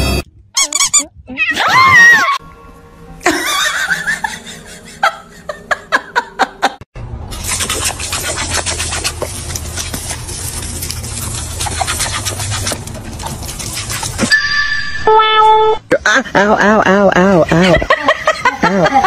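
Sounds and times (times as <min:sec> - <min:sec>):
person laughing: 0:03.2 - 0:06.8, 0:15.9 - 0:19.0.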